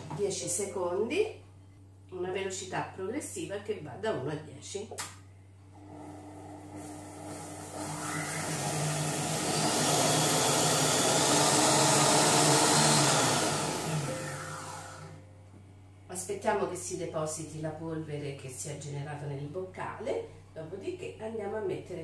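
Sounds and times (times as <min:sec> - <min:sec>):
kitchen machine blade whirring: 0:05.9 - 0:15.2.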